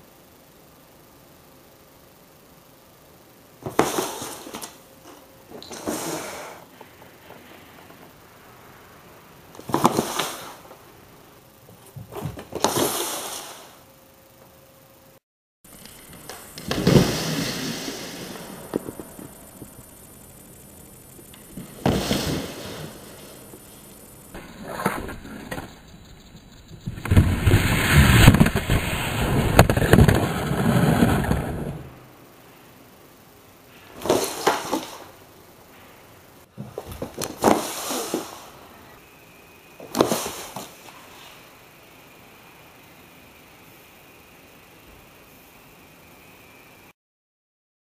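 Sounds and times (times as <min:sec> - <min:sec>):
cardboard box scraping on wood floor: 0:16.6 - 0:18.7, 0:21.6 - 0:23.4, 0:37.4 - 0:38.4.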